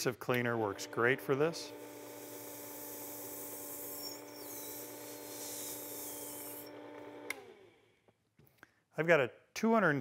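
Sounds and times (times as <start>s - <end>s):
power sharpener motor humming: 0.5s - 7.7s.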